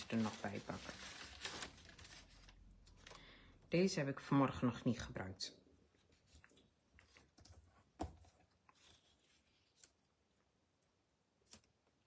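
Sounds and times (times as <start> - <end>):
paper rustle: 0.0 - 3.2, 6.0 - 10.3.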